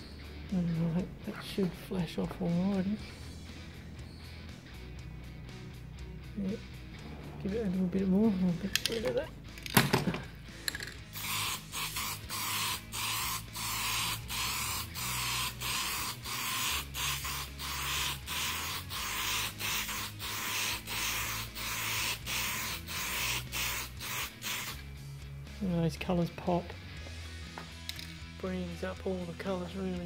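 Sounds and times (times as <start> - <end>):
aerosol can spraying bursts: 11.1 - 24.9.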